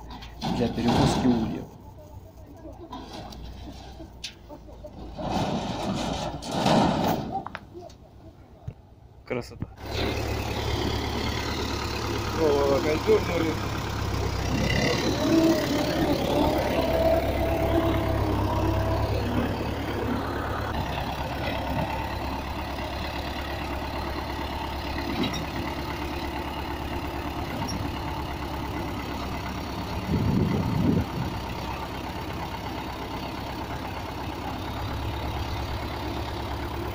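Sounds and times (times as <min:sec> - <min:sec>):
tractor engine idling: 0:00.0 - 0:36.9.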